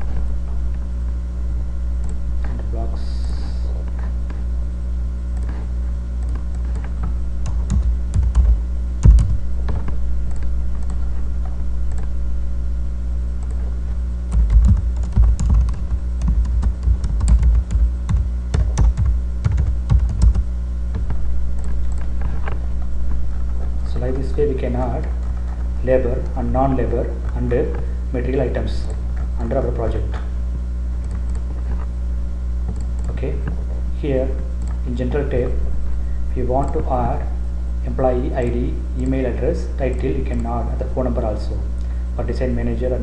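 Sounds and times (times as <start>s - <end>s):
steady low hum: 0.0s - 43.0s
typing on keyboard: 6.2s - 11.0s, 14.3s - 22.1s.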